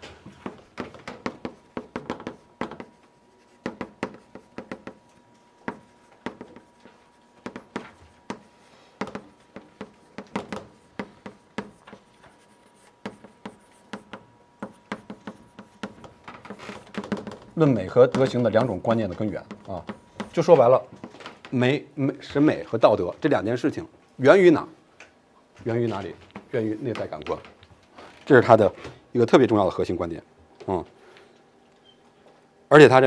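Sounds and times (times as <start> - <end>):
chalk tapping and scratching: 0.3 - 20.7.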